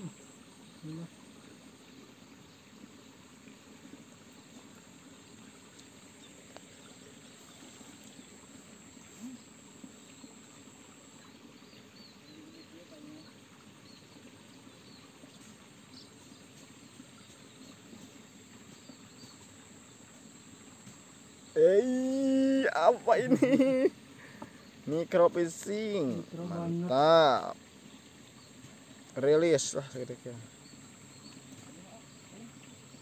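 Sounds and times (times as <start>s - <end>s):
trickling water: 0.0s - 33.0s.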